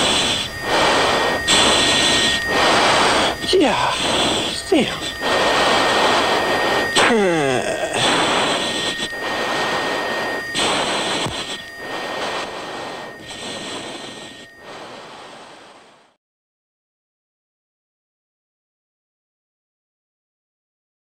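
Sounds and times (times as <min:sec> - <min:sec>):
whine dropping in pitch: 0:00.0 - 0:16.0
jet engine and airflow rushing: 0:00.0 - 0:16.2.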